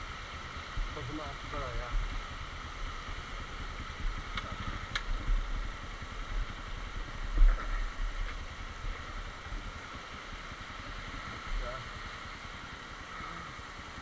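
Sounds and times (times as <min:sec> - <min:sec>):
motorcycle engine idling: 0:00.0 - 0:14.0.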